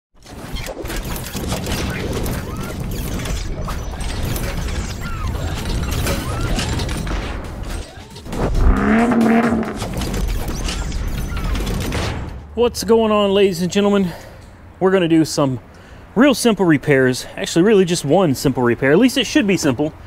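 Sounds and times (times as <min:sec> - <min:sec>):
metal parts clanking: 0:00.2 - 0:12.4
pitched tone: 0:08.4 - 0:10.0.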